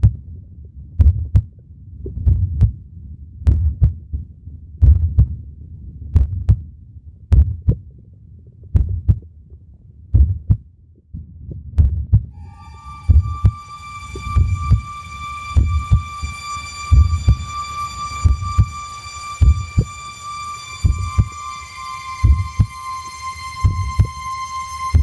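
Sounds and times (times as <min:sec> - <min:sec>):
heartbeat thumps: 0:00.0 - 0:00.3, 0:01.0 - 0:02.8, 0:03.4 - 0:05.4, 0:06.1 - 0:06.7, 0:07.3 - 0:12.3, 0:13.0 - 0:14.8, 0:15.4 - 0:16.3, 0:16.9 - 0:18.8, 0:19.4 - 0:19.9, 0:20.8 - 0:21.3, 0:22.2 - 0:22.7, 0:23.6 - 0:24.1.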